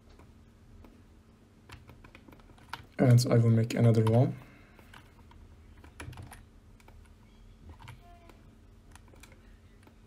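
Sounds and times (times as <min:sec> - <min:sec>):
low room hum: 0:00.0 - 0:10.0
keyboard and mouse clicks: 0:01.6 - 0:03.0, 0:04.8 - 0:10.0.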